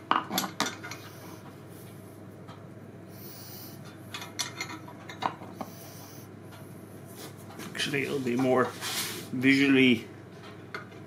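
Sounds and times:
short hissy scrape: 8.8s - 9.3s.

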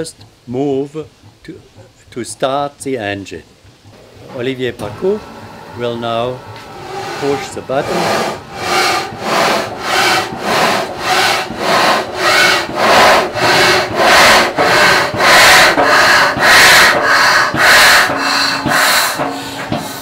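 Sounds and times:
rhythmic whoosh of engine air: 0.0s - 20.0s
steady low tone: 3.9s - 16.4s.

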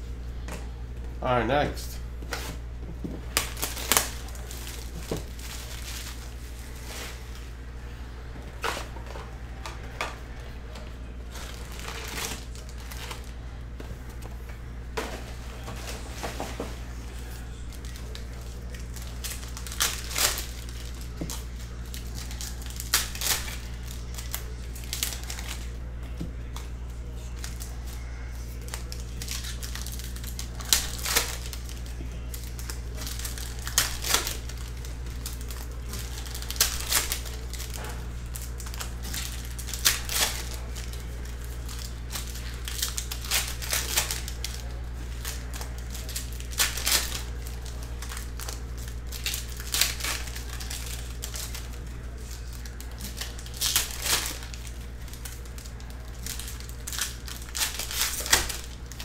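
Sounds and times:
steady low hum: 0.0s - 59.0s
foil wrappers crinkling and tearing: 3.2s - 13.4s, 14.0s - 59.0s.

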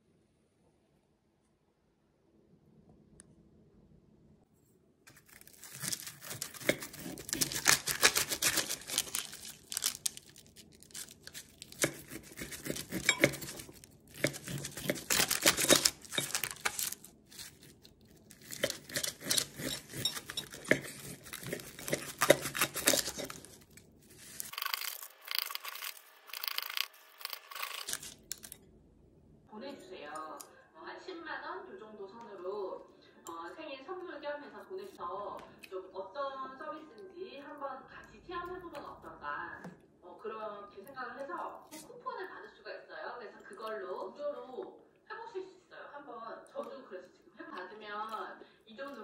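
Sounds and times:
scissors cutting crunchy crust: 5.1s - 28.6s.

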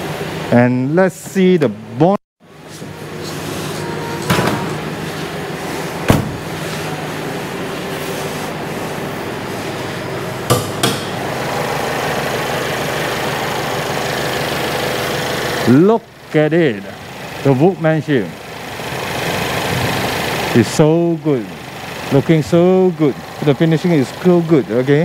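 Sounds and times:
workshop hum: 0.0s - 25.0s
solid thump: 6.1s - 6.4s.

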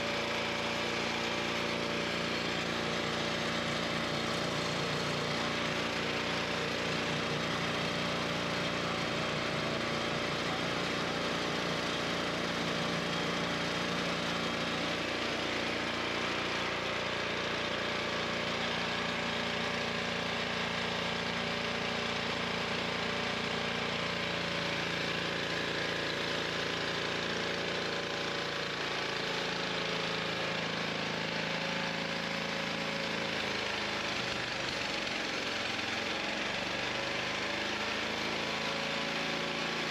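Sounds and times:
engine running steadily: 0.0s - 39.9s.

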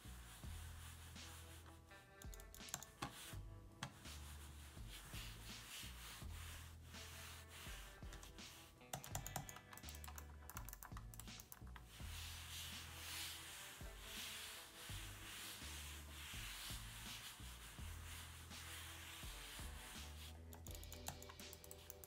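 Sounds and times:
mouse scraping across desk pad: 2.9s - 8.8s, 11.9s - 20.4s.

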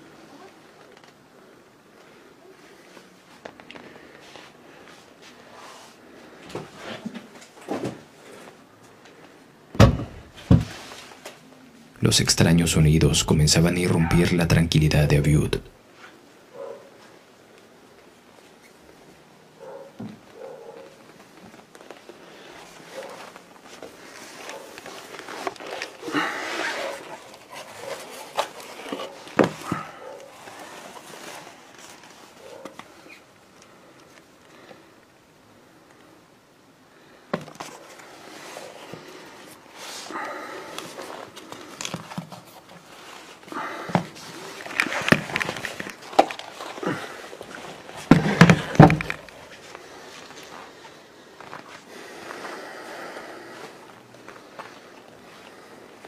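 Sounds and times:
rustles and light knocks: 40.7s - 51.9s.

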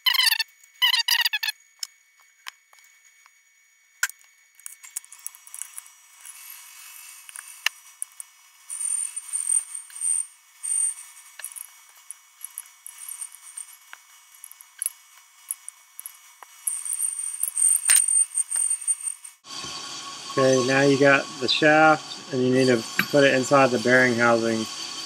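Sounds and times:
high thin whine: 0.0s - 25.0s
hex key clicking and scraping metal: 4.6s - 19.4s.

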